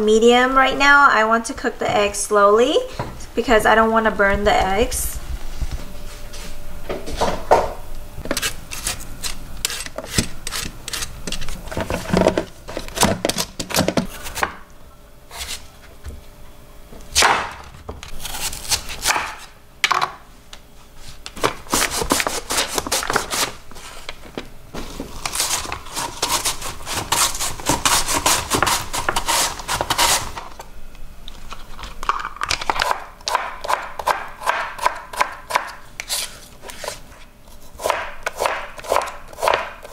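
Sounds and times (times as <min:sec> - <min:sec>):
knife chopping on cutting board: 0:18.2 - 0:19.5, 0:33.3 - 0:36.2, 0:37.8 - 0:39.9.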